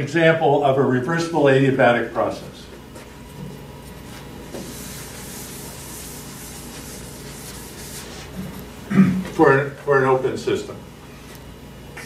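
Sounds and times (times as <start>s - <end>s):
eraser wiping a chalkboard: 3.0s - 8.7s.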